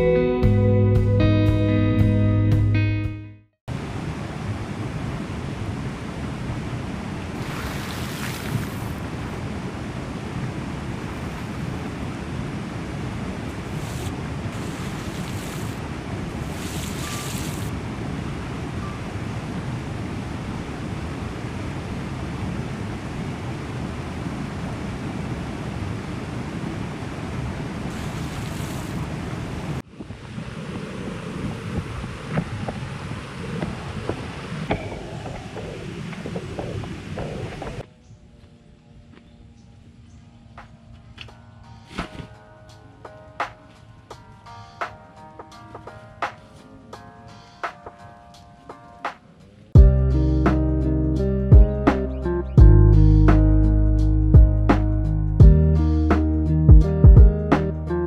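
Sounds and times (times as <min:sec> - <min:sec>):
stream rushing over rocks: 0:03.7 - 0:37.8.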